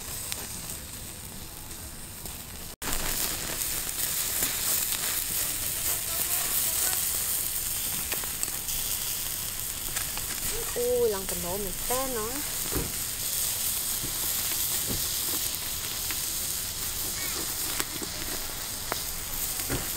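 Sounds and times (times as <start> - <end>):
embers crackling: 0.0 - 19.9
fat sizzling on roasting meat: 0.0 - 19.9.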